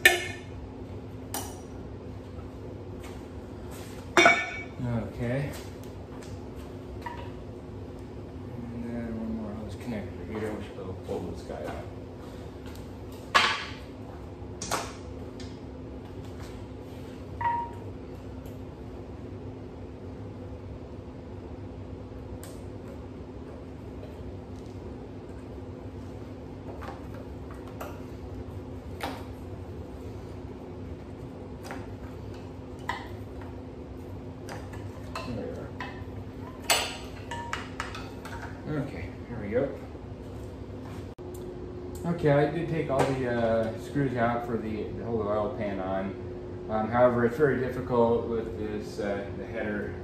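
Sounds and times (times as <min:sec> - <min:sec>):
steady low hum: 0:00.0 - 0:50.0
ringing metallic ping: 0:04.2 - 0:04.8.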